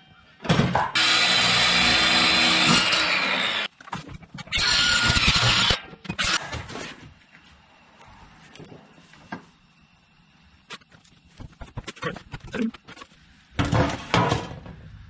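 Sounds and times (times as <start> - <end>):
circular saw cutting: 1.0 - 3.7, 4.5 - 6.4.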